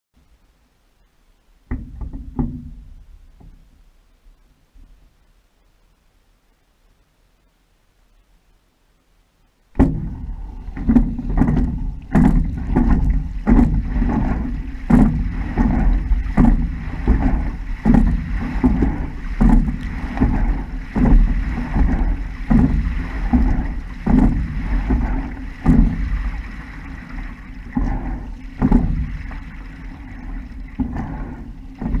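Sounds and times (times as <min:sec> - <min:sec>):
water rushing along hull: 0:00.2 - 0:32.0
oars knocking in oarlocks: 0:01.7 - 0:03.6, 0:09.8 - 0:32.0.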